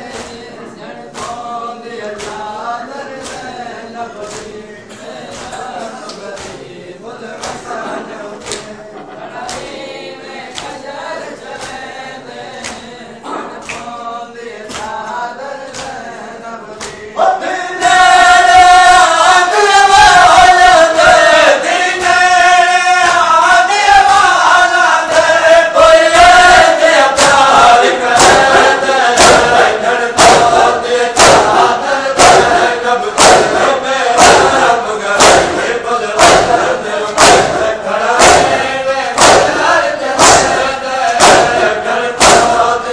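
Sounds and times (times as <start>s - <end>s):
men chanting in unison: 0.0s - 42.9s
chest-beating slaps: 1.1s - 1.5s, 2.1s - 2.5s, 3.2s - 3.6s, 4.2s - 4.6s, 12.6s - 14.0s, 14.7s - 16.0s, 16.8s - 17.1s, 27.0s - 42.9s.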